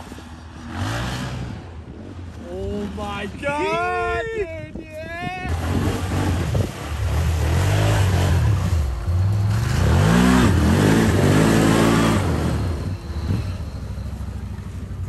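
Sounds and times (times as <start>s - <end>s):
atv engine revving hard: 0.0s - 1.8s, 5.4s - 13.6s.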